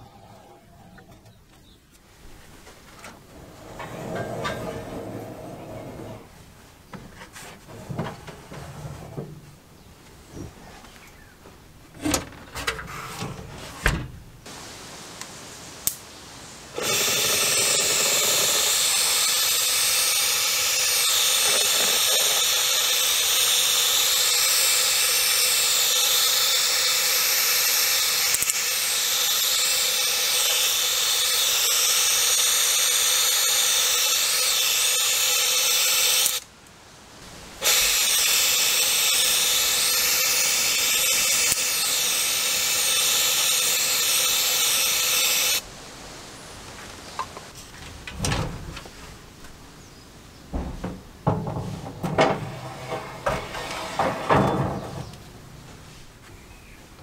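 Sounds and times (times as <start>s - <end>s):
metal clanks and knocks: 3.0s - 6.3s, 50.5s - 55.8s
electric air blower blowing: 16.7s - 36.4s, 37.6s - 45.6s.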